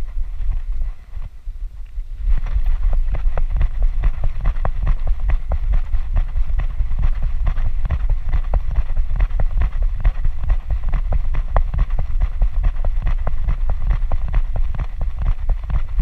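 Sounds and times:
wind on microphone: 0.0 - 16.0
harness thumps from running strides: 2.3 - 16.0.

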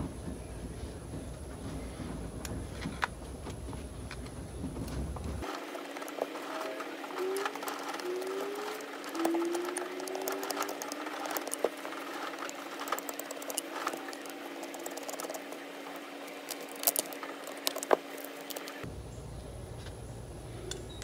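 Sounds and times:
screwdriver clicking and scraping metal: 5.9 - 18.8.

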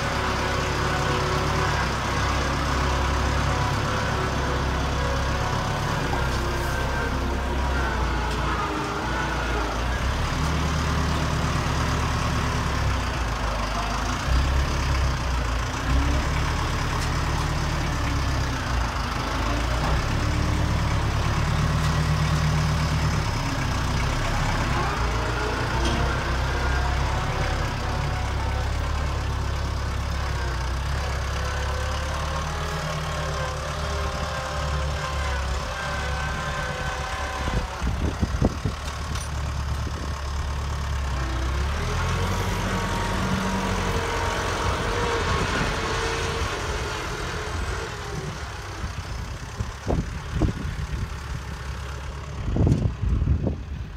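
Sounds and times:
tractor diesel engine running: 0.0 - 53.9.

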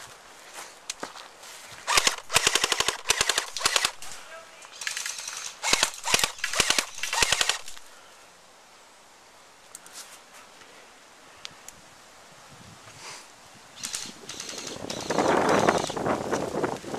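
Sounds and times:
airsoft rifle firing bursts: 1.9 - 4.1, 4.8 - 7.8.

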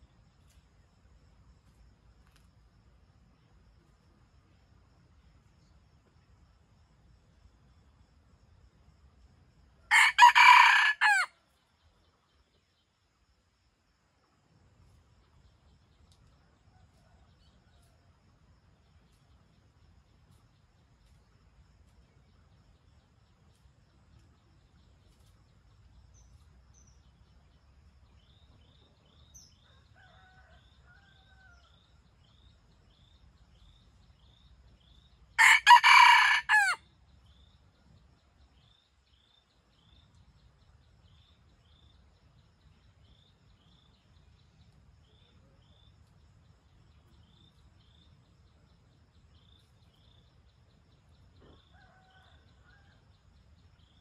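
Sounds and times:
faint steady chirping: 0.0 - 54.0
rooster crowing: 9.9 - 11.4, 35.4 - 36.8.

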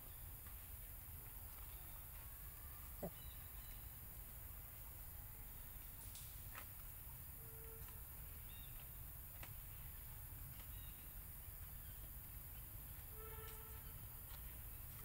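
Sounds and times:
short animal calls: 3.0 - 3.3.

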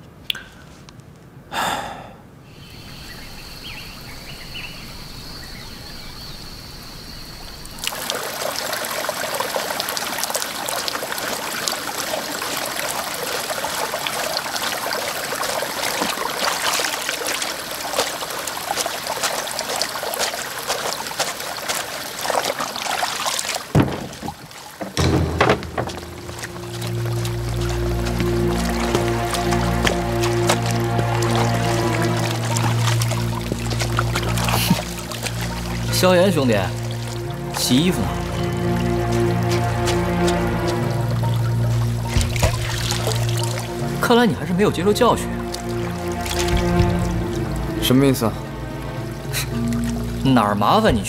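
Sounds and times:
water pouring and splashing: 7.5 - 51.0
clothes washed by hand: 7.8 - 51.0
sharp knocks: 23.7 - 27.4.

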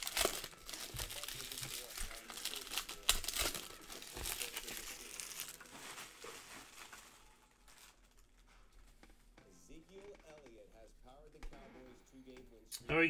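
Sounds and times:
card pack wrapper tearing: 0.0 - 8.2.

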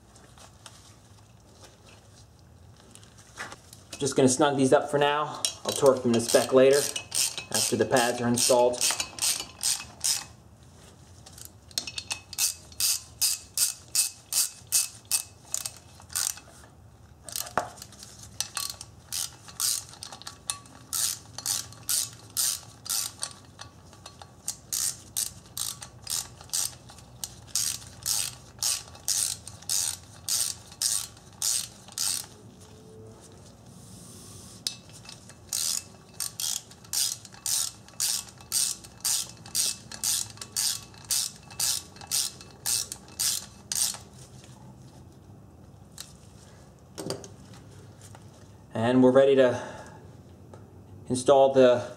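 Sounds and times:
hand ratchet clicking: 5.3 - 10.4, 11.3 - 16.6, 17.3 - 32.4, 34.6 - 44.1.

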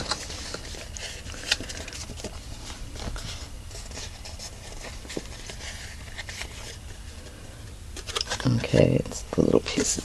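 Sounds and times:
paper rustling and rubbing: 0.0 - 7.4
cardstock being folded: 0.0 - 10.0.

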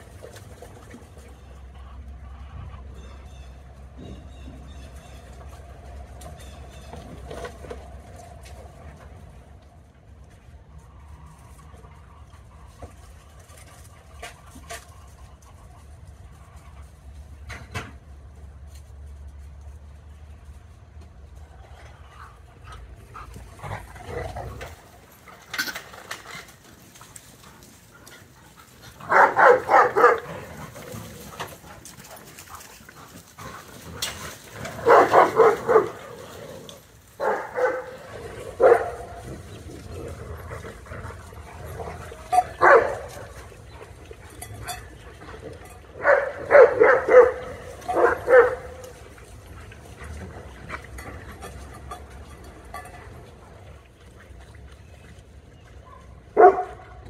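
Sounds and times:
dogs barking: 28.2 - 36.4, 37.1 - 43.7, 44.4 - 49.0, 55.8 - 57.0.

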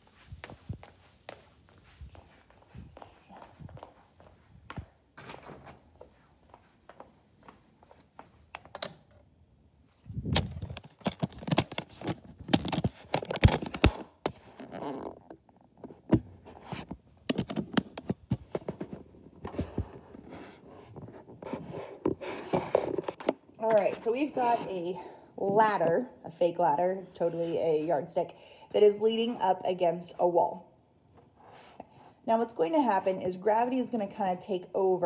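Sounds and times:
phone handling rustling: 10.4 - 14.4, 16.8 - 19.0.

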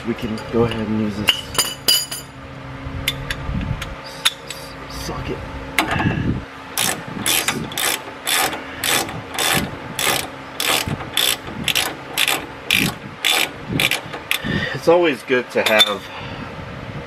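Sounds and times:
ratchet wrench clicking: 6.8 - 14.5.

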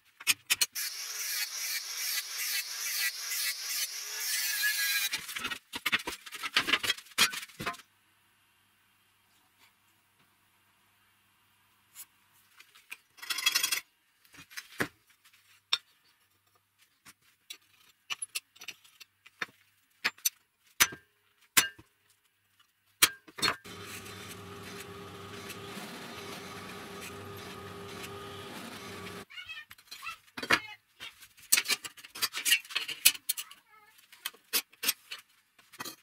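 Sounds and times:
drill press cutting steel: 0.8 - 4.4, 23.7 - 29.2.

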